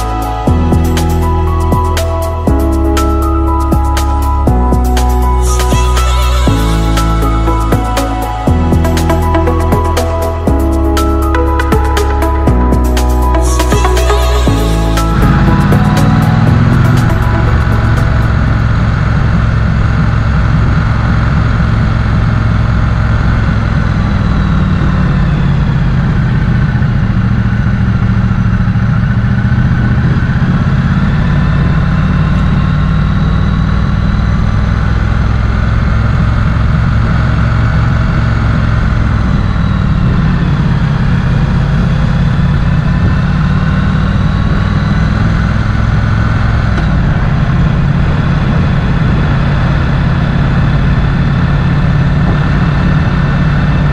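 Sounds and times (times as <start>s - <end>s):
motorcycle engine running: 0.0s - 53.9s.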